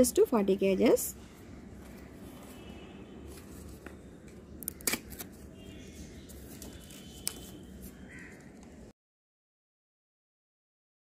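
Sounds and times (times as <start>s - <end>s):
plastic packaging rustling: 1.8s - 8.4s.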